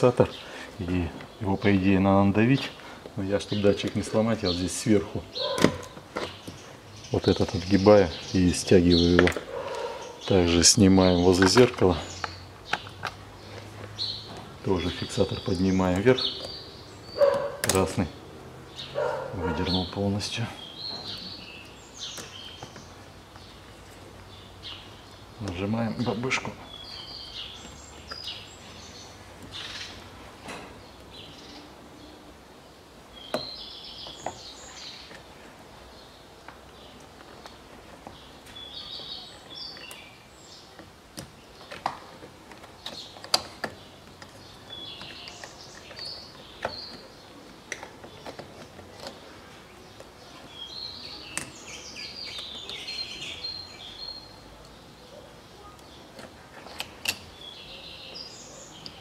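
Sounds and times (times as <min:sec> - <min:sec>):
small bird chirping: 0:03.6 - 0:30.2, 0:33.1 - 0:59.0.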